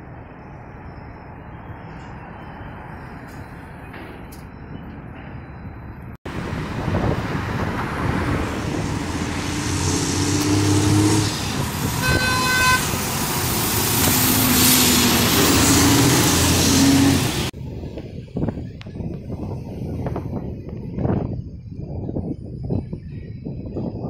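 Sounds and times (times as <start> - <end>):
street traffic: 0.0 - 24.0
heavy truck engine passing: 6.3 - 17.6
vehicle horn toots: 12.0 - 13.0.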